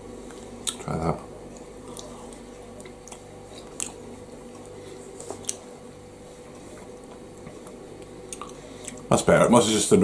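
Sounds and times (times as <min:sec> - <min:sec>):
steady low hum: 0:00.0 - 0:10.0
person chewing with wet mouth clicks: 0:01.6 - 0:04.0, 0:05.4 - 0:05.6, 0:07.6 - 0:09.0.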